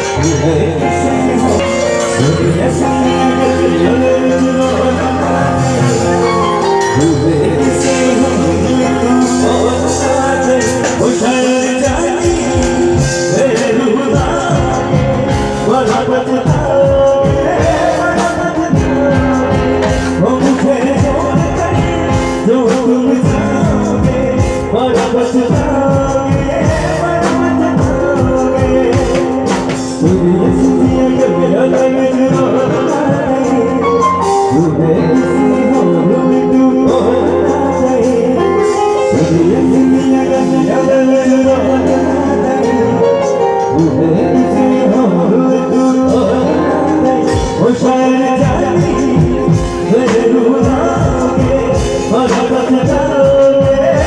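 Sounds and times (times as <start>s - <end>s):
drum beats: 0.0s - 54.0s
live band music: 0.0s - 54.0s
person singing: 0.0s - 54.0s.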